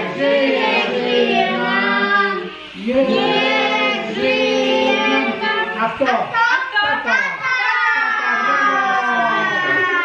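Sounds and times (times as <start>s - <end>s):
group of people singing: 0.0s - 6.1s.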